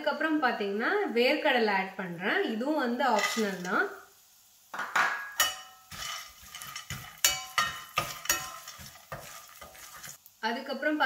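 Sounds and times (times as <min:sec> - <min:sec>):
spoon clinking and scraping pan: 0:03.1 - 0:03.9, 0:04.8 - 0:10.2
metal spoon stirring peanuts in pan: 0:03.1 - 0:04.0, 0:05.3 - 0:10.3.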